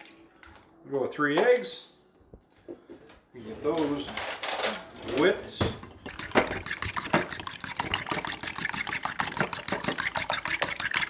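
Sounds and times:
fork whisking eggs in bowl: 5.8 - 11.0.

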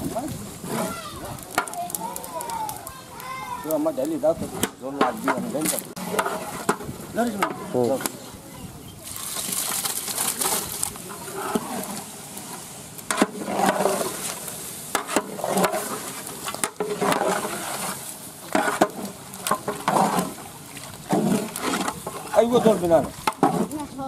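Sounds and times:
metal spatula scraping pot: 0.6 - 1.8, 4.6 - 8.2, 9.3 - 12.1, 13.1 - 24.0
meat sizzling in oil: 9.0 - 24.0.

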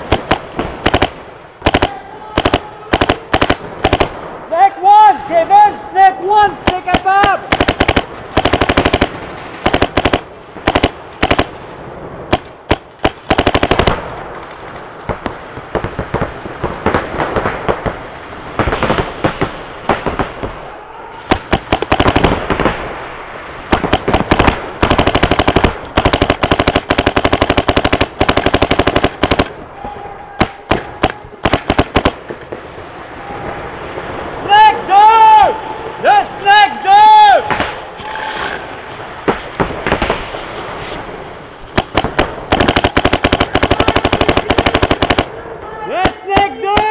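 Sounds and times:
paintball markers firing: 0.0 - 4.2, 6.7 - 11.6, 12.3 - 15.2, 21.3 - 22.6, 23.8 - 29.5, 30.4 - 32.4, 41.7 - 45.3.

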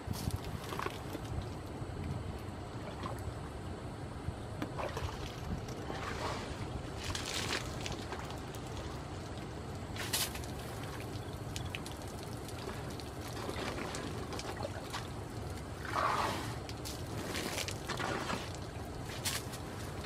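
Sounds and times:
water trickling and splashing: 4.8 - 20.0.

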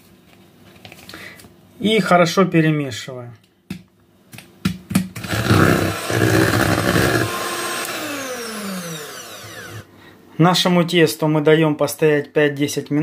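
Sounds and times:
mixer clicks: 5.2 - 9.8
electric hand mixer running: 5.2 - 9.9.

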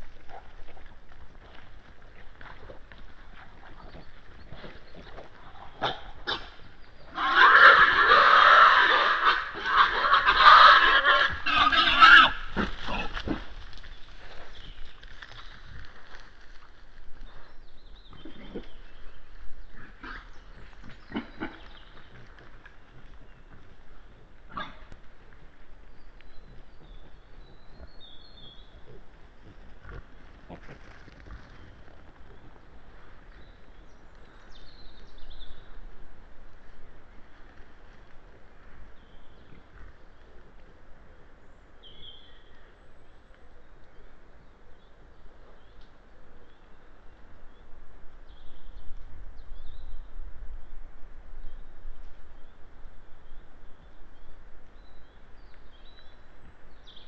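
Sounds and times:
outdoor background: 0.0 - 57.0
wild boars squealing: 5.8 - 13.4
faint clicks and rustles: 12.6 - 19.8, 20.4 - 34.6.

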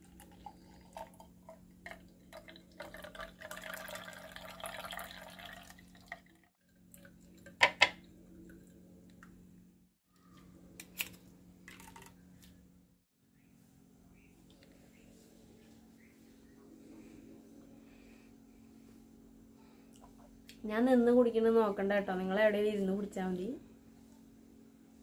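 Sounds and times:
juice splashing into a glass: 0.0 - 8.7, 11.7 - 12.2.

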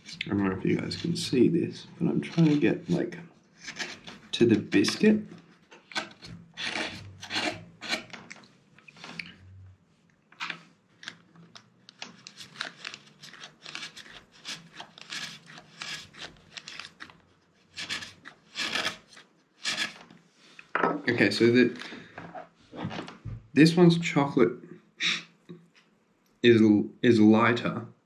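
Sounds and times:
knife scraping biscuit: 2.2 - 5.1, 5.8 - 8.2, 12.1 - 20.1.

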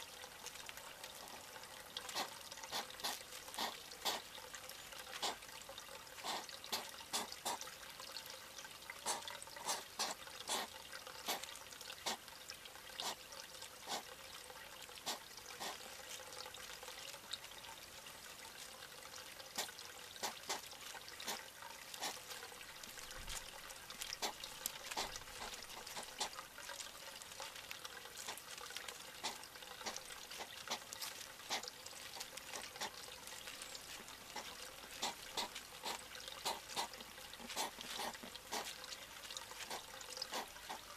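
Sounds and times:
water trickling: 0.0 - 40.9
hedgehog crunching food pellets: 2.1 - 4.2, 6.2 - 7.6, 9.0 - 10.7, 22.0 - 26.4, 27.8 - 40.9.

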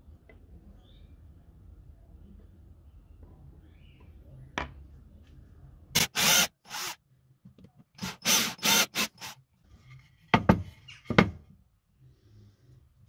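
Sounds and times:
drill boring into wood: 6.0 - 7.0, 8.0 - 9.4.

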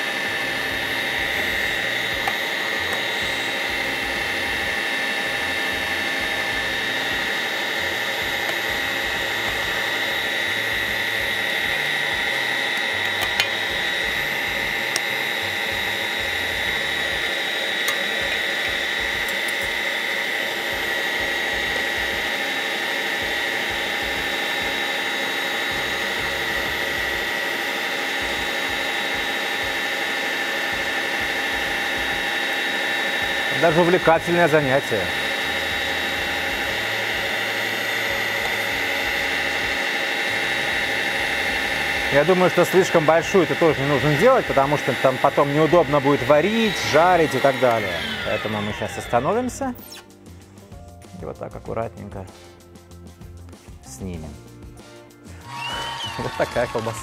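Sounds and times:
electric meat grinder whining: 0.0 - 50.8, 54.1 - 57.0.

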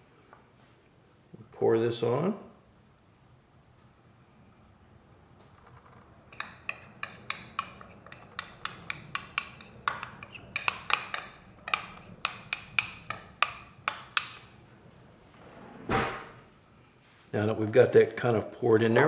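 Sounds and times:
metal spoon tapping bowl rim: 6.3 - 14.6.

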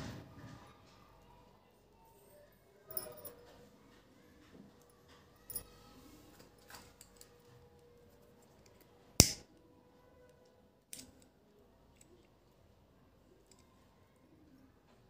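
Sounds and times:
lighter click and hiss: 9.2 - 9.4.

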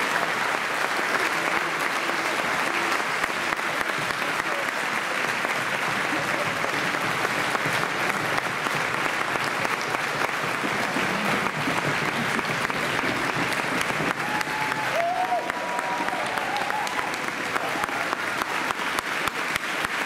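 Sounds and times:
audience applauding: 0.0 - 20.0.

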